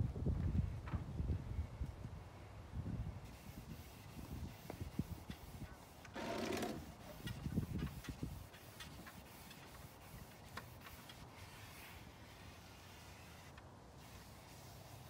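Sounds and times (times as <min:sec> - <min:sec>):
hand scrubbing wood surface: 0:03.3 - 0:15.0.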